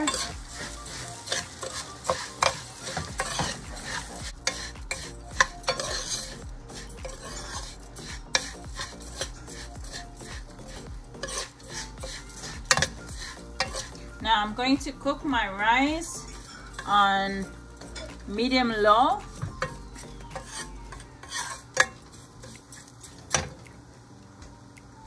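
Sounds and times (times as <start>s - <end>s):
spoon scraping pan: 0.0s - 14.2s, 16.0s - 23.6s
rice sizzling in oil: 0.0s - 24.8s.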